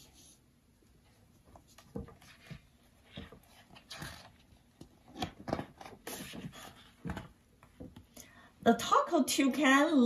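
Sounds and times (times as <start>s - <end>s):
book page turning: 1.6s - 7.2s.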